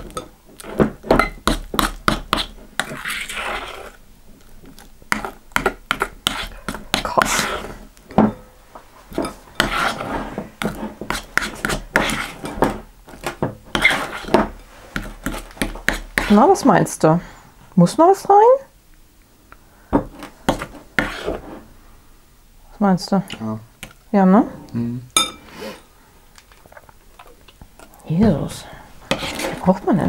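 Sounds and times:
spoon scraping glass bowl: 1.2 - 4.0, 9.1 - 12.6, 13.7 - 15.4, 21.0 - 21.5, 29.1 - 29.9.

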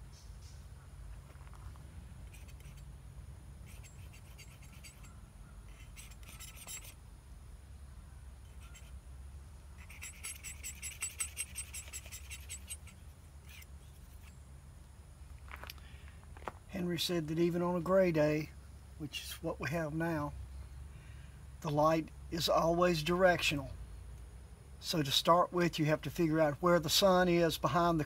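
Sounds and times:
palette knife scraping paint: 2.3 - 2.8, 3.7 - 5.1, 5.7 - 7.0, 8.5 - 8.9.

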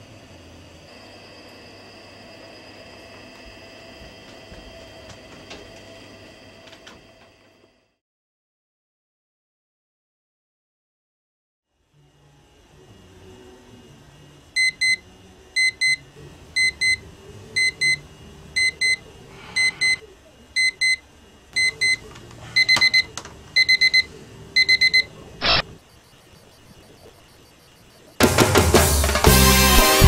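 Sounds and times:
digital alarm clock beeping: 14.6 - 15.0, 15.6 - 16.0, 16.6 - 17.0, 17.6 - 18.0, 18.6 - 19.0, 19.6 - 20.0, 20.6 - 21.0, 21.6 - 22.0, 22.6 - 28.2.

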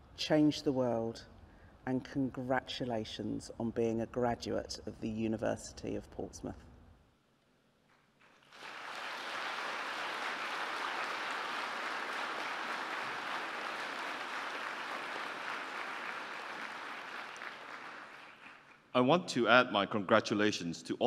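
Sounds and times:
audience applauding: 8.2 - 18.8.

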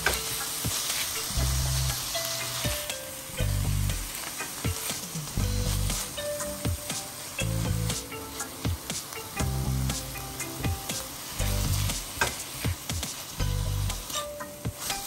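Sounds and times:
background music: 0.0 - 15.0
meat sizzling in a frying pan: 0.0 - 15.0
spatula scraping a pan: 13.9 - 15.0.

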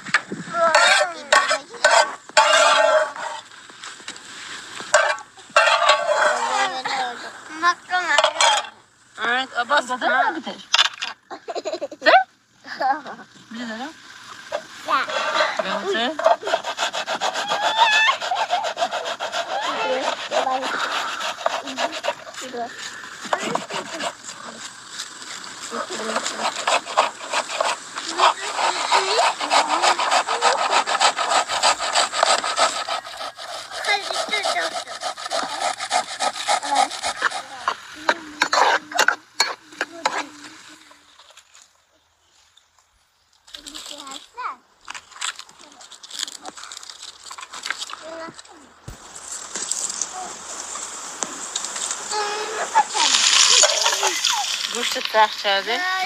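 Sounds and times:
wooden spatula stirring in pan: 0.0 - 8.7, 12.8 - 41.1, 48.9 - 56.0
utensil scraping inside pot: 0.5 - 3.6, 4.4 - 7.2, 7.9 - 9.4, 13.6 - 40.4, 48.9 - 56.0
tomato rasping on metal grater: 0.6 - 3.5, 4.9 - 7.1, 14.5 - 40.3, 52.1 - 56.0.

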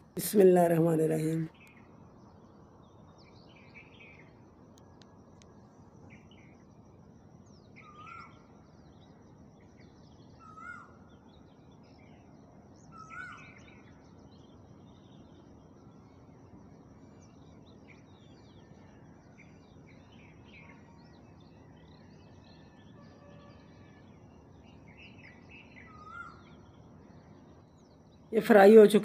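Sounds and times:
small bird chirps: 7.4 - 16.3, 17.0 - 29.0.

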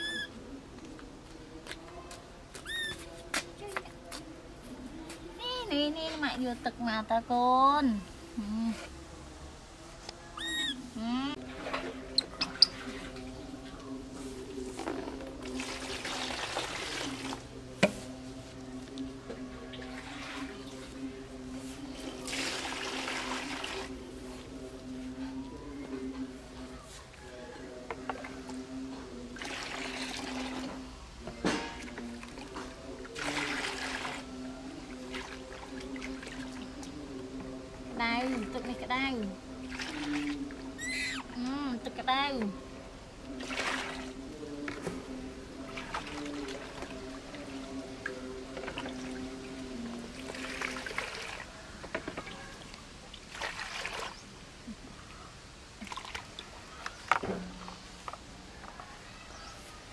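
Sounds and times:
water pouring into plastic basin: 14.9 - 17.5, 22.0 - 23.9, 29.3 - 30.7, 31.8 - 34.3, 39.6 - 40.6, 43.4 - 44.2, 45.7 - 51.5, 53.1 - 54.2, 55.8 - 56.7.

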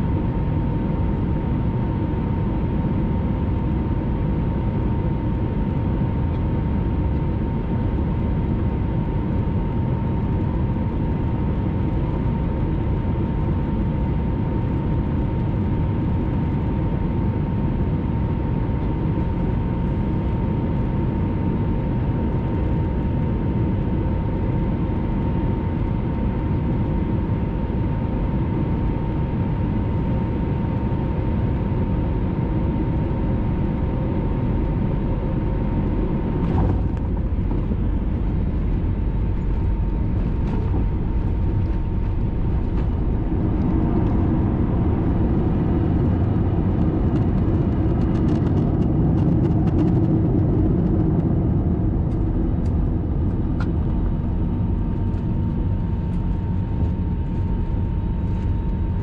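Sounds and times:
jet engine and airflow rumble: 0.0 - 59.0
thin steady whine: 34.5 - 59.0.

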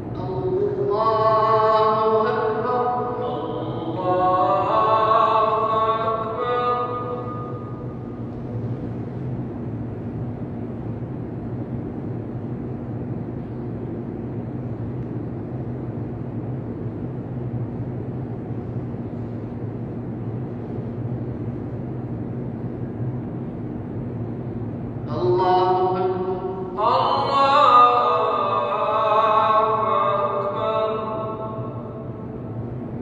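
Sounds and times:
amplified voice: 0.0 - 8.2, 25.1 - 32.5
low hum and rushing room tone: 0.0 - 33.0.

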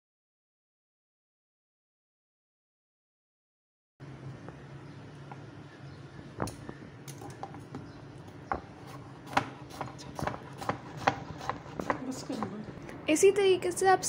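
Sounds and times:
knife tapping on wooden board: 8.5 - 12.6.

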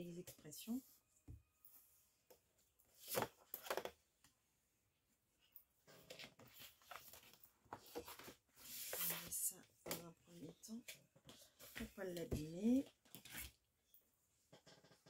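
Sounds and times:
paper rustling: 6.0 - 9.4.

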